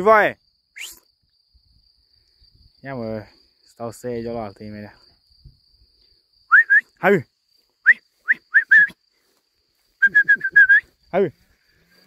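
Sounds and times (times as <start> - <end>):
person whistling: 6.5 - 7.0, 7.8 - 9.0, 10.0 - 10.9.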